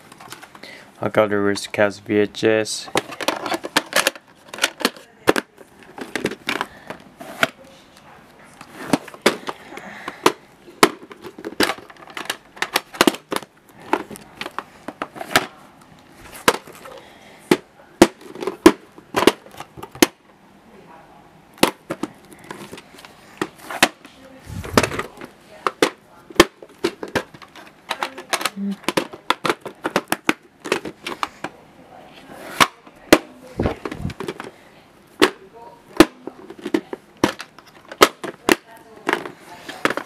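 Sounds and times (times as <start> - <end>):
plastic tape cases clacking: 0.0 - 0.7, 2.8 - 7.6, 8.6 - 20.2, 21.6 - 31.6, 32.6 - 34.6, 35.2 - 40.0.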